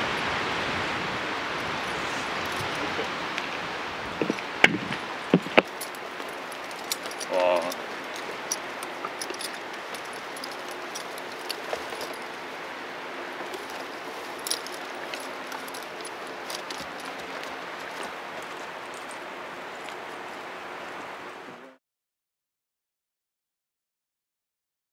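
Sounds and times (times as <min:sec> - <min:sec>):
electric fan blowing: 0:00.0 - 0:21.8
light clicks and jingles: 0:01.6 - 0:03.6, 0:04.2 - 0:21.2.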